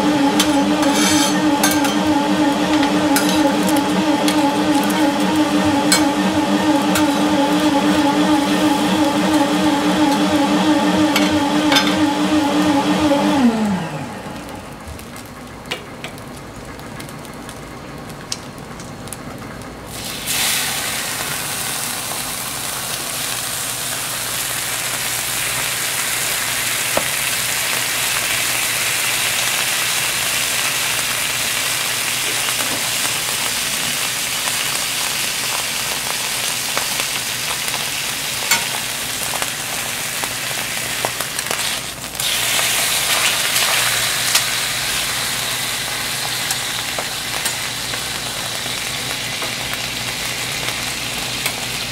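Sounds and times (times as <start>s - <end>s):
humming tone gliding down: 0.0s - 14.4s
food sizzling on a griddle: 19.9s - 51.9s.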